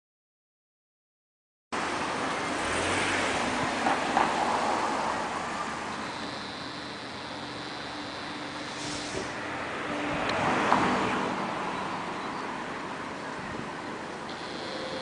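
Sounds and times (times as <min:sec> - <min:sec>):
steady car noise: 0:01.8 - 0:15.0
faint high whine: 0:05.1 - 0:09.1, 0:14.2 - 0:15.0.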